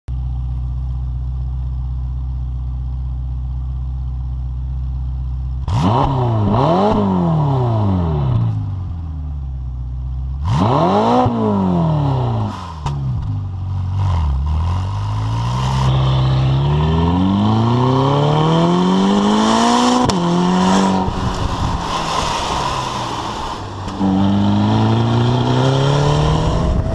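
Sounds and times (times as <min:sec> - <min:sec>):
car engine idling: 0:00.1 - 0:05.7, 0:08.6 - 0:10.4
engine revving: 0:05.6 - 0:08.7, 0:10.4 - 0:13.3, 0:13.9 - 0:26.9.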